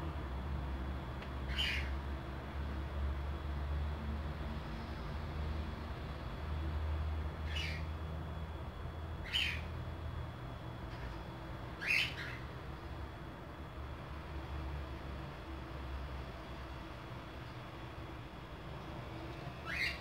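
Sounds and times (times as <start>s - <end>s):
steady low hum: 0.0s - 20.0s
bird chirping: 1.5s - 2.0s, 7.4s - 7.9s, 9.2s - 9.8s, 11.8s - 12.5s, 19.6s - 20.0s.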